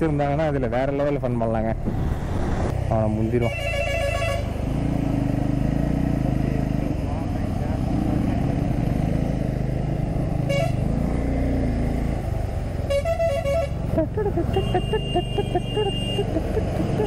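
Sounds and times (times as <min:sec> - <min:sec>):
motorcycle engine rumble: 0:00.0 - 0:17.0
wind: 0:00.0 - 0:17.0
vehicle horn beeps: 0:03.4 - 0:04.5, 0:12.9 - 0:13.8, 0:14.5 - 0:16.3.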